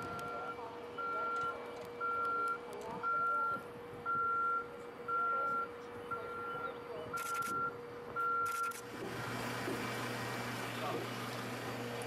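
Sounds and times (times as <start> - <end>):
reversing alarm beeping: 0.0 - 8.8.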